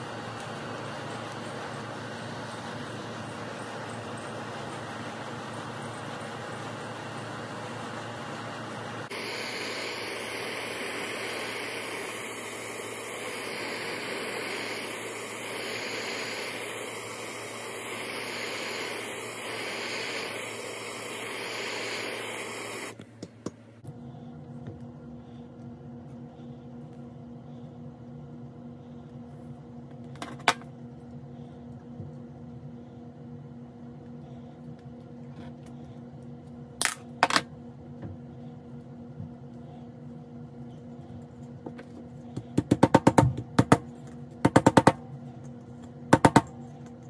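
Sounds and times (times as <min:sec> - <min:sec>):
gas torch hissing: 0:08.9 - 0:23.0.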